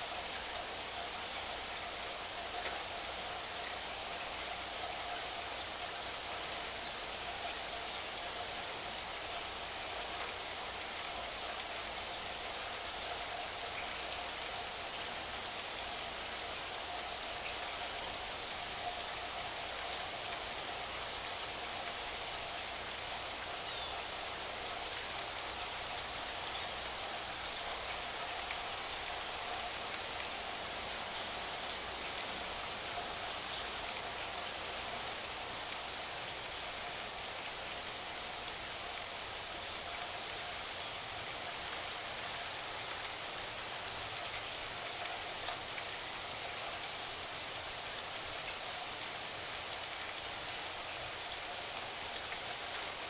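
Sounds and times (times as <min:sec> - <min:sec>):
steady rain hissing: 0:00.0 - 0:53.0
faint raindrop ticks: 0:02.1 - 0:08.4.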